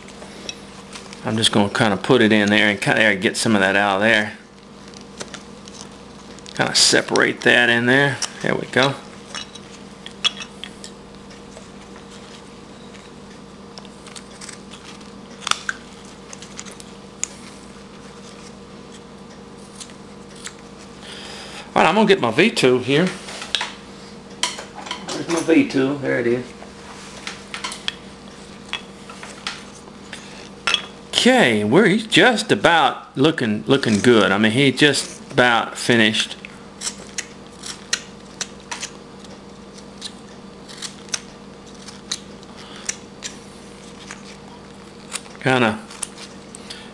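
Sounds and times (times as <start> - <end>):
knife carving wood chips: 1.2 - 20.9, 36.0 - 46.8
blade carving wood: 36.8 - 44.2.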